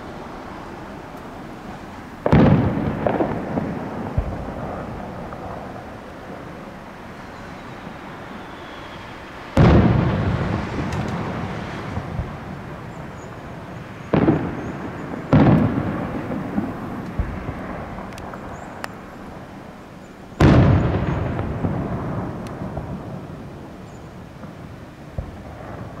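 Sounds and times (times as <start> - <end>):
firework shells booming: 1.2 - 26.0.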